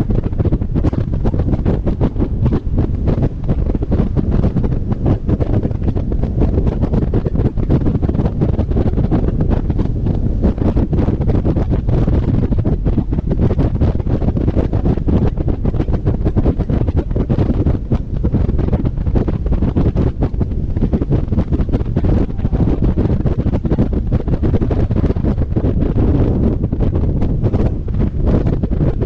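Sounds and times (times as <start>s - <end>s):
wind buffeting microphone: 0.0s - 29.0s
car road noise: 19.9s - 24.2s.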